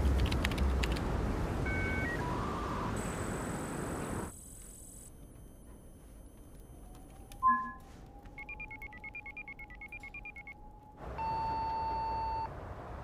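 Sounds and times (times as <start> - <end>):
video call software beep: 5.0 - 10.6
bleeping tones of changing pitch: 5.5 - 10.6.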